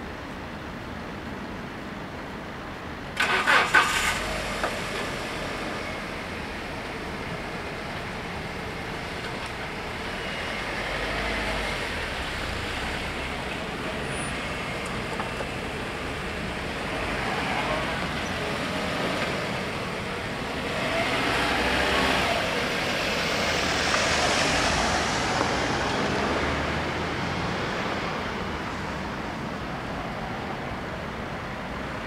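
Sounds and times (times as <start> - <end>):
motor vehicle passing: 16.3 - 27.6.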